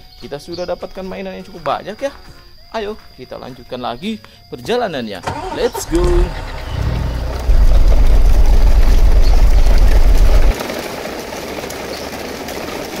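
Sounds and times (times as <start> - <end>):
toy truck wheels rolling on dirt: 5.3 - 13.0
loud low rumble: 5.9 - 10.5.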